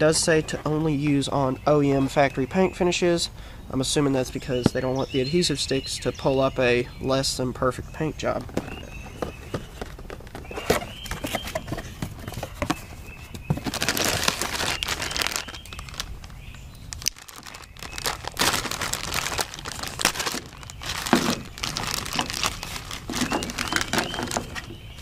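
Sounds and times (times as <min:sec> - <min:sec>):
plastic bags crinkling: 0:08.5 - 0:25.0.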